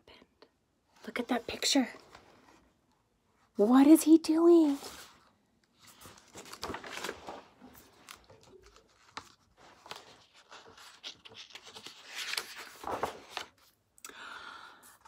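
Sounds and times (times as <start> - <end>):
paper rustling: 4.6 - 13.8.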